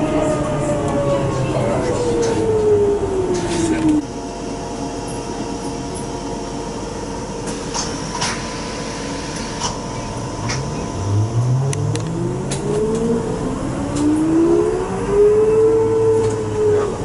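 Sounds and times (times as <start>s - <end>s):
electrical hum with whining tones: 0.0s - 17.0s
falling motor whine: 10.2s - 16.7s.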